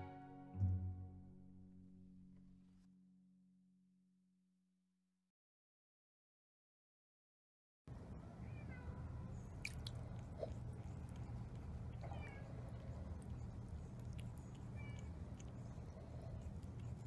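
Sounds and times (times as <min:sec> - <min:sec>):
steady low hum: 0:07.9 - 0:17.0
cat licking water: 0:09.3 - 0:17.0.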